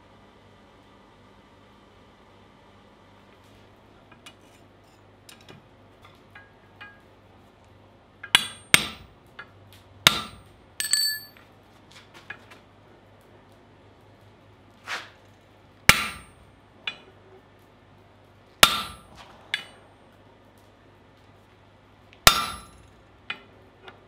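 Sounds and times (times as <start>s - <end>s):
hammer striking hot steel: 6.2s - 7.1s, 8.2s - 11.4s, 15.9s - 17.1s, 18.6s - 19.8s, 22.2s - 23.5s
anvil ringing bell-like tone: 10.8s - 11.4s.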